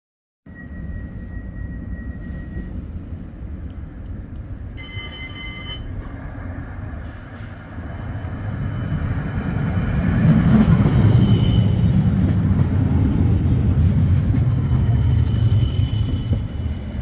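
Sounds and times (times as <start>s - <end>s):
ringing multi-tone signal: 0.5s - 2.8s, 4.8s - 6.0s
tram rumbling on track: 0.5s - 17.0s.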